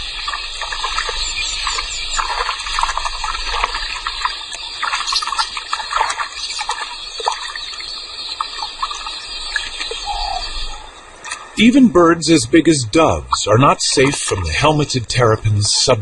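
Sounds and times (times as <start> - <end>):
short irregular splashes: 0.0 - 10.0
water splashing: 0.0 - 16.0.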